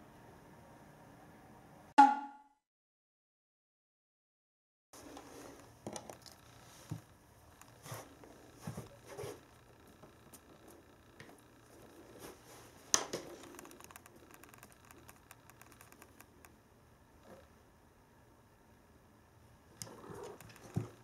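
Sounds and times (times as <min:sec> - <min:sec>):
sharp knock: 0:02.0 - 0:02.4.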